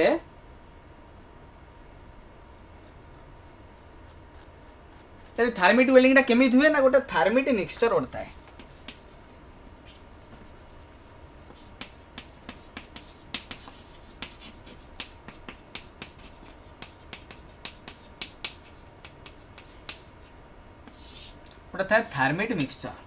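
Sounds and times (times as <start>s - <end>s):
chalk writing on chalkboard: 4.0s - 5.4s, 8.2s - 21.4s.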